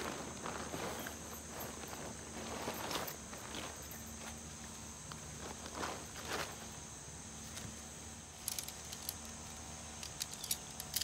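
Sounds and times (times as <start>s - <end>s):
tent fabric rustling: 0.0s - 4.4s, 5.3s - 6.7s
steady high hiss: 0.0s - 11.0s.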